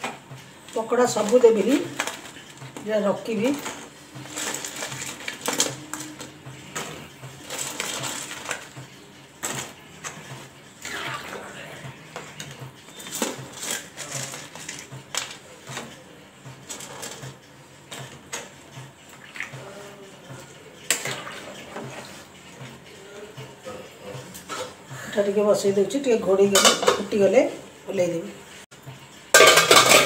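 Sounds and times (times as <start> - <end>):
clinks against steel plate: 29.3 - 30.0.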